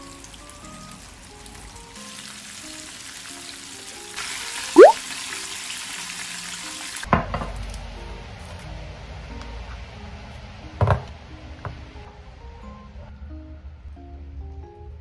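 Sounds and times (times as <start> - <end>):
food deep-frying in oil: 0.0 - 8.0
soft background music: 0.0 - 15.0.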